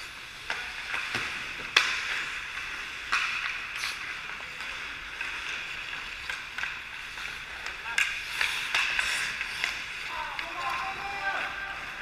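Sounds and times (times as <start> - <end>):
hockey sticks and puck clacking: 0.0 - 12.0
skates scraping on ice: 0.0 - 12.0.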